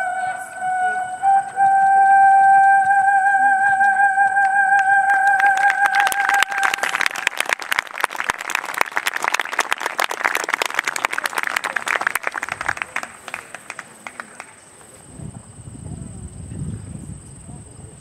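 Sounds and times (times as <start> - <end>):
held note of music: 0.0 - 7.0
audience applauding: 4.4 - 14.7.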